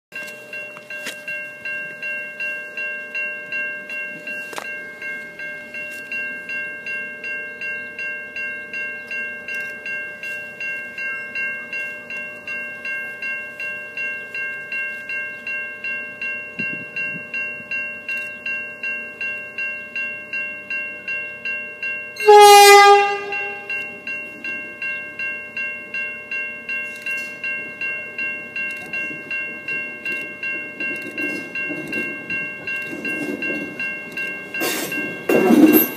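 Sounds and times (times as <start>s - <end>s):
level crossing bell ringing: 0.2s - 35.9s
train horn: 22.2s - 23.8s
train rumbling on rails: 26.8s - 35.9s.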